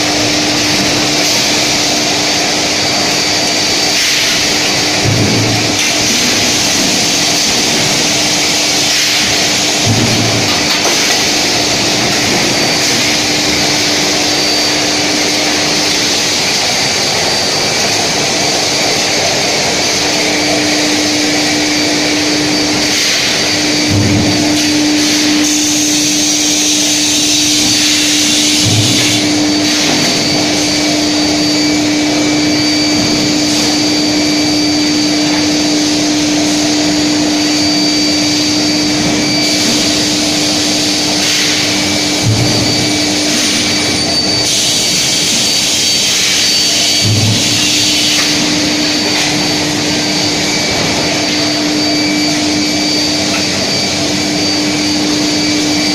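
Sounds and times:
loud rushing machine noise: 0.0 - 55.9
faint high whines: 11.2 - 55.9.

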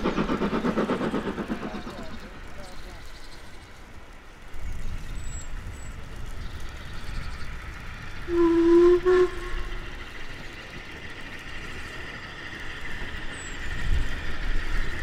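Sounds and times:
steam engine hiss and rumble: 0.0 - 15.0
steam locomotive whistle: 8.2 - 9.9.

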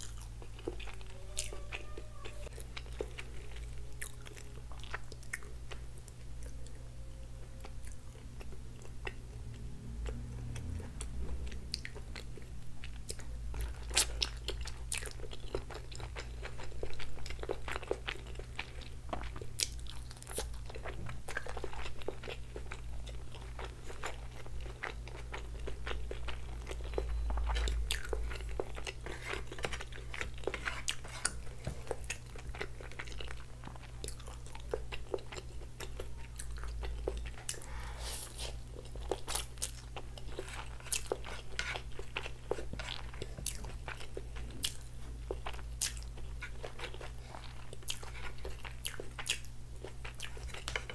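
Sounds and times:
biting and chewing food: 0.0 - 6.8, 7.6 - 50.9.

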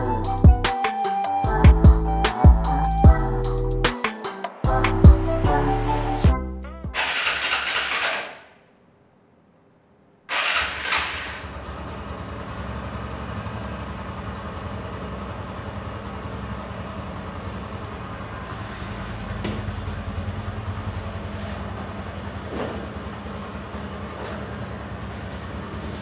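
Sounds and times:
background music: 0.0 - 7.3
motorcycle engine starting and idling: 6.8 - 8.6, 10.3 - 26.0.

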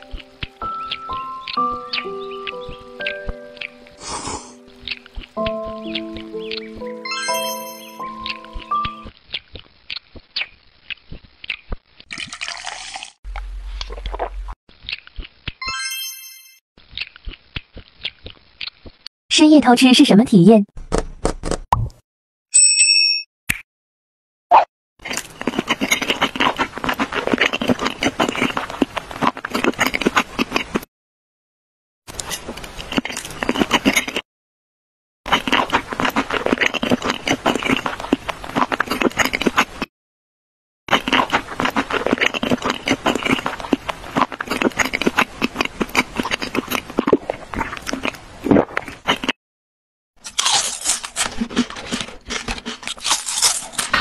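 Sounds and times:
snack crackling and clicking: 0.0 - 7.0, 8.0 - 13.1, 13.8 - 15.6, 16.8 - 19.1, 25.0 - 30.9, 32.1 - 34.2, 35.3 - 39.9, 40.9 - 49.4, 50.2 - 54.0.

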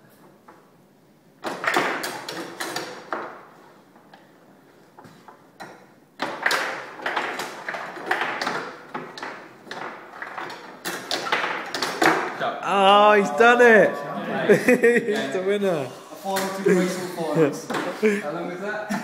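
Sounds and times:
table football plastic clacks: 1.4 - 12.4.

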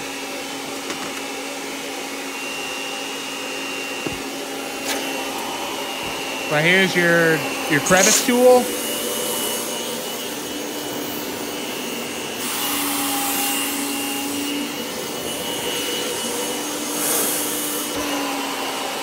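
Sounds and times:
vacuum cleaner motor whine: 0.0 - 19.0.

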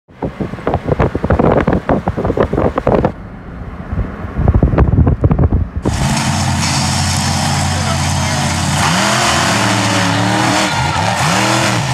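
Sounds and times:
wind buffeting microphone: 0.1 - 3.2, 3.8 - 6.0.

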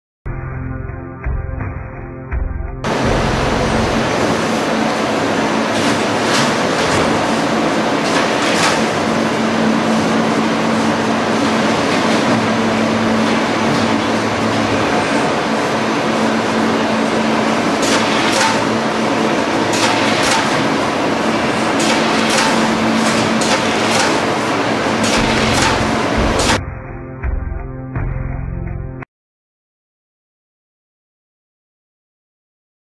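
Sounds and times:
belt conveyors running: 2.9 - 26.6.

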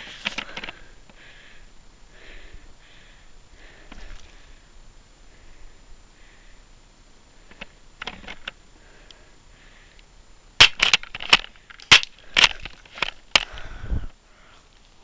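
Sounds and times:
sharp cracks and knocks: 7.5 - 8.6, 10.6 - 13.7.

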